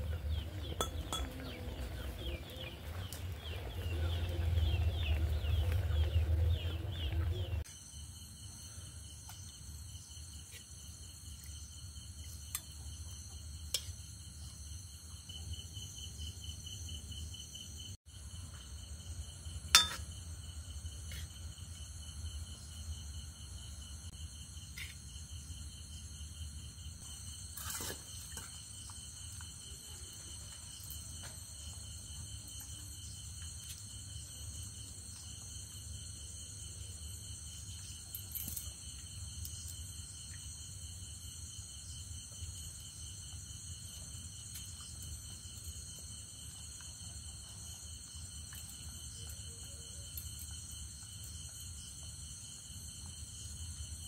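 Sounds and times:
low hum: 0:00.0 - 0:07.6
night insects chirping: 0:00.0 - 0:54.0
metal utensils clinking on bowls: 0:00.7 - 0:01.6, 0:19.8 - 0:20.1.

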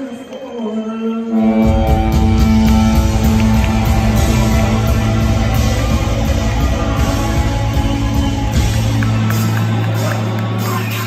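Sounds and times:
live rock band playing: 0:01.4 - 0:11.0.

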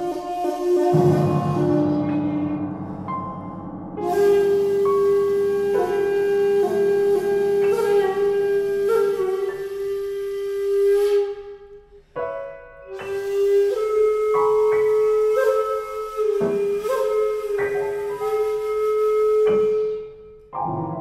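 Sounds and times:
breathy flute note: 0:00.0 - 0:21.0
low accompaniment: 0:00.0 - 0:21.0.

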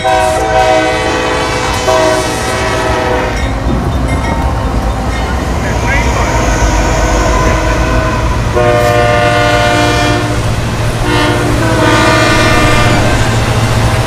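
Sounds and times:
locomotive air horn blasts: 0:00.0 - 0:03.5, 0:07.0 - 0:13.3
low rumble of locomotive engines: 0:00.0 - 0:14.0.

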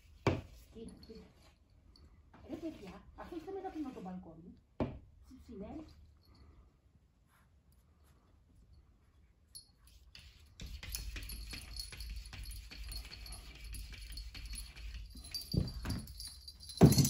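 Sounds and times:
cat collar jingling: 0:09.5 - 0:17.0
cat scratching at glass door: 0:10.1 - 0:15.3.

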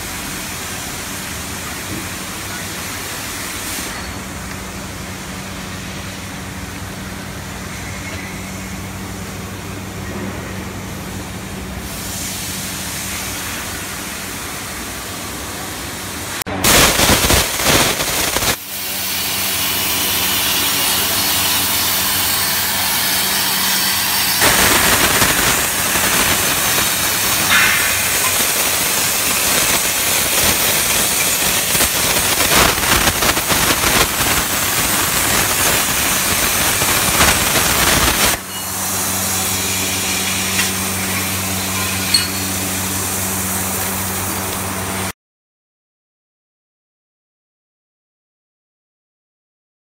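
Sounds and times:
plasma cutter hissing: 0:02.7 - 0:04.2, 0:16.3 - 0:44.2.

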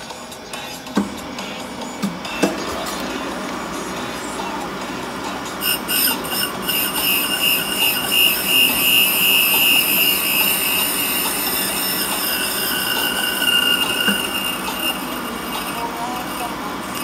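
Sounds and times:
grinding machine squeal: 0:02.3 - 0:17.0
lower grinding tone: 0:02.8 - 0:17.0.

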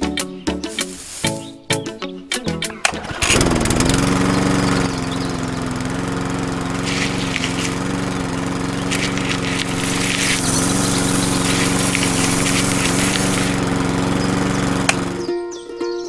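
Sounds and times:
seeds rattling through machine: 0:00.6 - 0:01.5, 0:02.9 - 0:15.2
small electric motor whining: 0:02.9 - 0:15.3.

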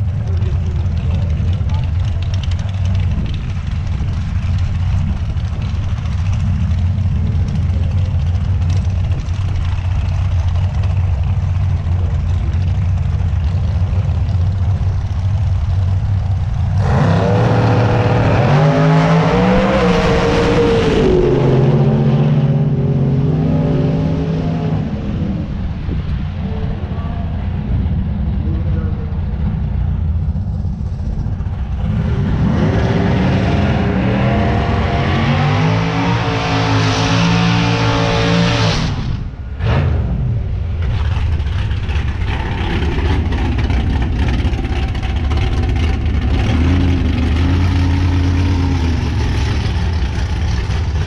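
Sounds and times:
vehicle engine idling: 0:00.0 - 0:17.6, 0:21.3 - 0:32.5, 0:40.4 - 0:51.0
car engine revving: 0:00.0 - 0:51.0.

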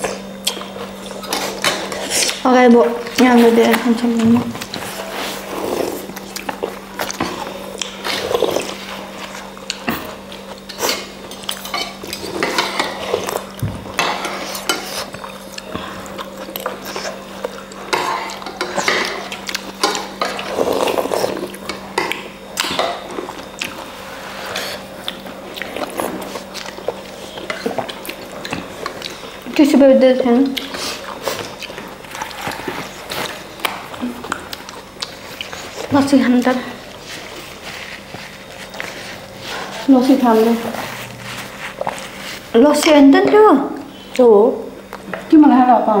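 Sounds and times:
utensils clinking against a bowl: 0:00.0 - 0:23.8
faint steady hum: 0:00.0 - 0:46.0.

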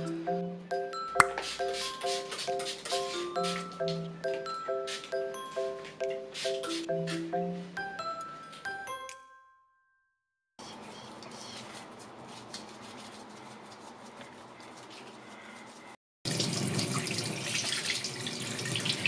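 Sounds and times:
tap water running into sink: 0:16.3 - 0:19.0.

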